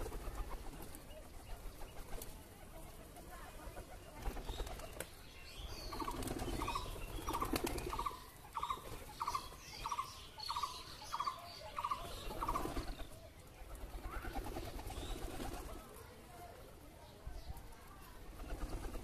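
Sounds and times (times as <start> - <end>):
pigeon wings flapping: 0.0 - 5.2, 5.9 - 8.1, 12.3 - 13.1, 13.7 - 16.1, 18.2 - 19.0
pigeons cooing: 5.6 - 13.2.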